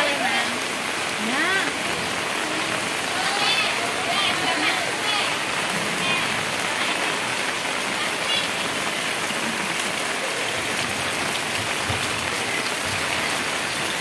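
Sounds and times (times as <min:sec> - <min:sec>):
heavy rain: 0:00.0 - 0:14.0.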